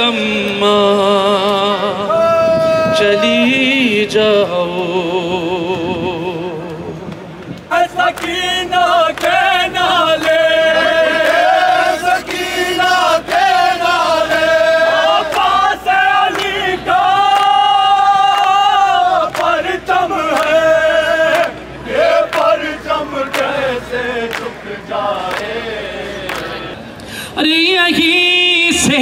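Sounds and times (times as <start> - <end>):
men chanting a lament: 0.0 - 7.0, 7.7 - 26.8
crowd: 0.0 - 29.0.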